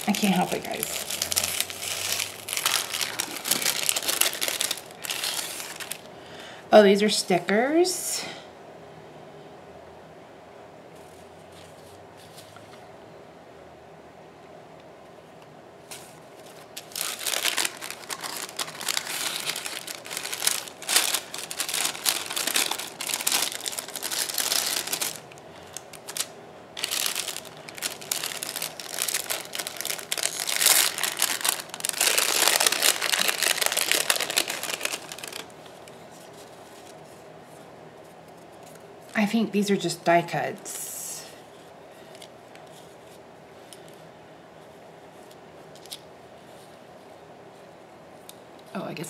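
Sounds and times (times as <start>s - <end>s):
plastic packaging crinkling: 0.0s - 6.1s, 15.8s - 37.2s.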